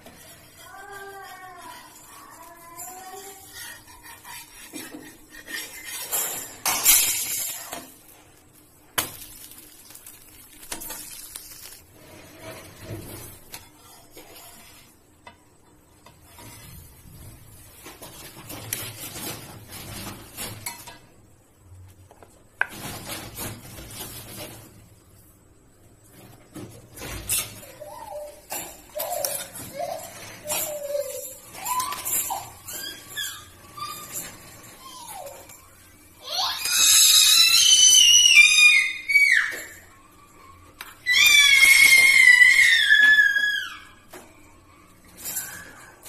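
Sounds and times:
utensil scraping griddle pan: 0.0 - 7.8, 16.0 - 20.9.

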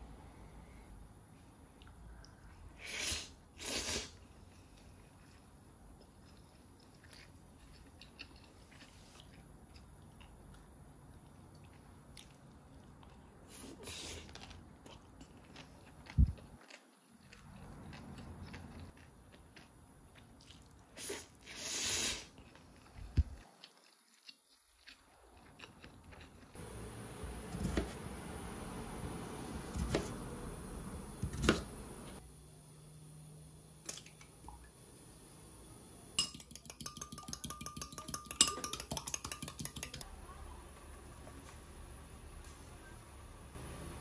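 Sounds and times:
chewing and eating: 4.3 - 21.4, 22.3 - 26.6.

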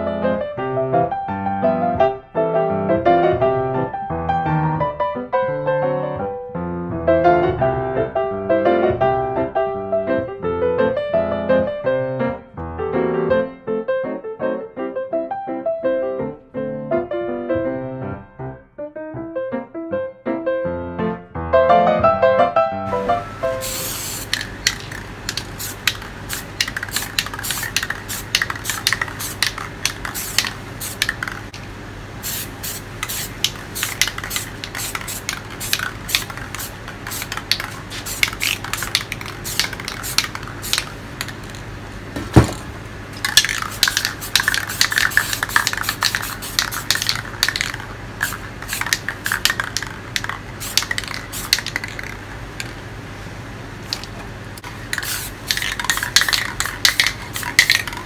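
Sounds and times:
spray-paint can hissing: 22.9 - 31.6, 32.2 - 41.6, 43.2 - 52.8, 53.9 - 58.0.

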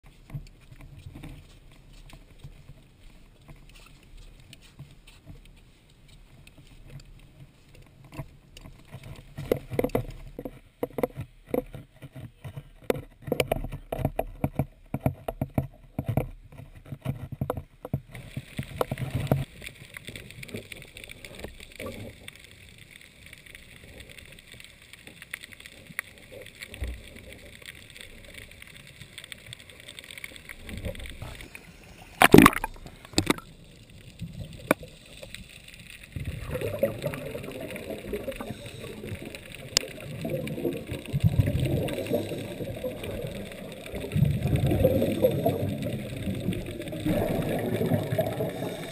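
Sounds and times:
water hissing and sloshing: 18.1 - 48.9.

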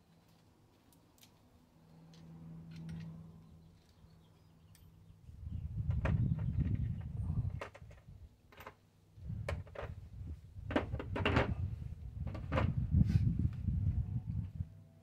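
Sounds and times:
clicks and knocks of handling: 7.5 - 8.8.

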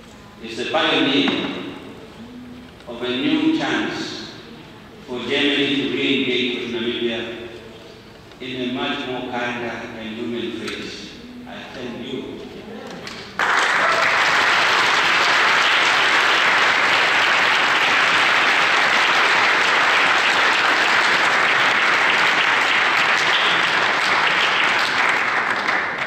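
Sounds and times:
audience applauding: 13.1 - 26.0.

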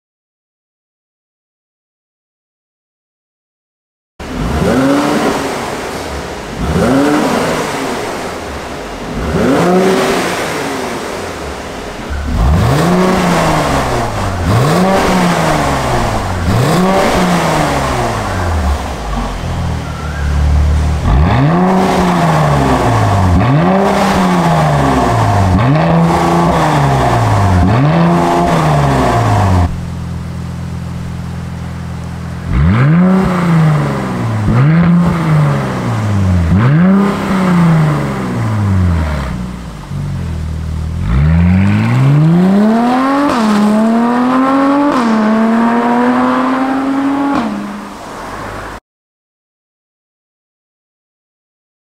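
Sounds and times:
car engine idling: 4.2 - 45.6
car accelerating and upshifting: 4.2 - 48.8
car engine revving: 4.2 - 48.8.

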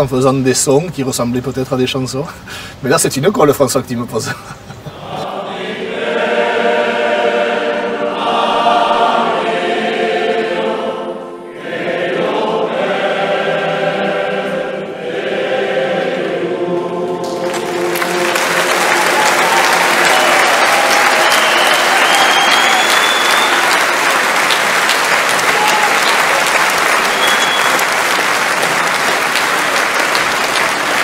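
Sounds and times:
male choir singing: 4.9 - 24.5
audience applause: 17.2 - 31.0.

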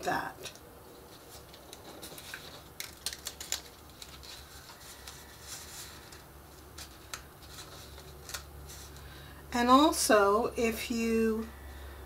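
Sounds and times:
paper clicks and crinkles: 0.4 - 9.2
paper rustling: 0.9 - 9.2.

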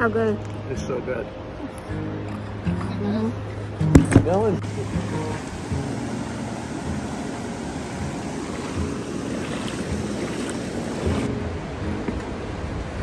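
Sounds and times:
water rushing: 0.0 - 13.0
wind noise: 3.8 - 13.0
feet sloshing through water: 4.7 - 11.4.

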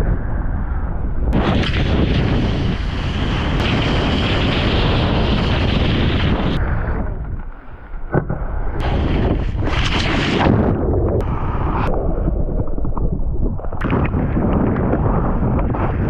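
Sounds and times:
wind buffeting microphone: 0.0 - 16.0
wakeboard cutting through water: 5.4 - 16.0.

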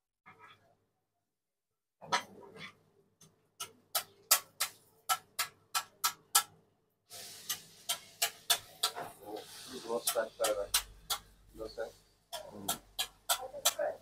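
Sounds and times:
steady hiss: 7.1 - 12.8
metal spatula tapping on griddle: 7.5 - 9.2, 10.0 - 11.3, 12.3 - 14.0.

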